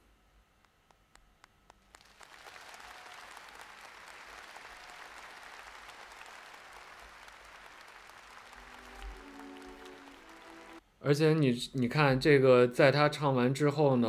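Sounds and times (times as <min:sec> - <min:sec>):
audience applause: 0:01.9 - 0:10.8.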